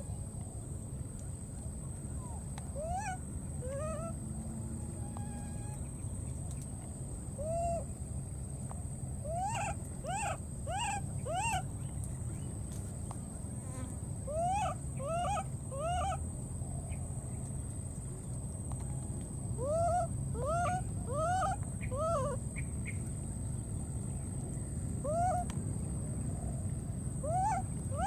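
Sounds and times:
baby monkey crying: 2.8s - 4.1s, 9.3s - 11.6s, 14.3s - 16.2s, 19.6s - 22.4s, 27.2s - 28.0s.

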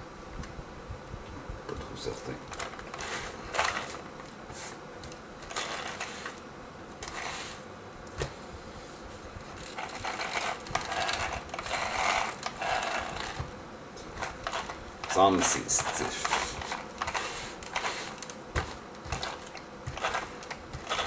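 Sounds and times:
plastic and metal parts rattling: 2.5s - 4.0s, 9.6s - 13.4s, 14.2s - 18.4s, 19.1s - 21.0s.

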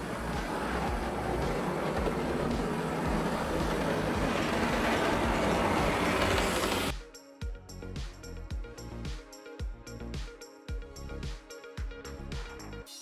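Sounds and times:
model locomotive whirring rattle: 0.0s - 6.9s.

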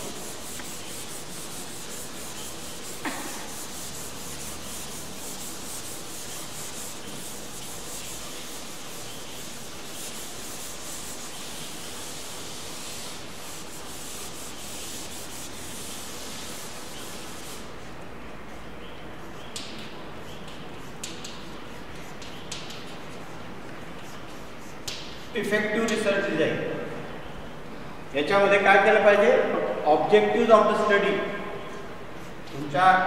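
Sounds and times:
eraser rubbing on chalkboard: 0.0s - 19.6s, 20.2s - 25.5s.

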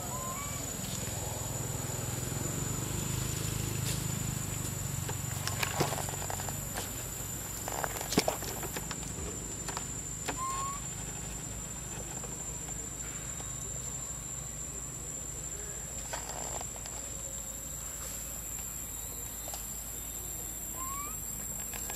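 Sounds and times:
high-pitched insect drone: 0.0s - 21.9s.

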